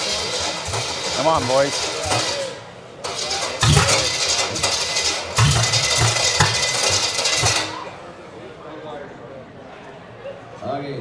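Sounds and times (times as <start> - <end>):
engine cranking and sputtering: 0.0 - 8.0.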